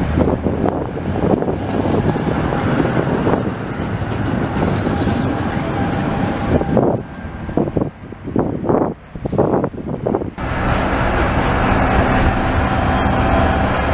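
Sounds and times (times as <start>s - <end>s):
tram wheels rumbling on rails: 0.0s - 13.9s
high squeal: 10.6s - 13.9s.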